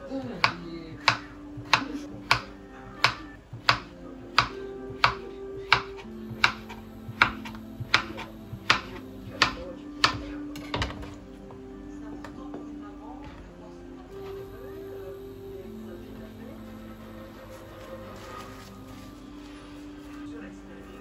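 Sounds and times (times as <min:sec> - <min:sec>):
background music: 0:00.0 - 0:21.0
knife chopping on cutting board: 0:00.4 - 0:10.9.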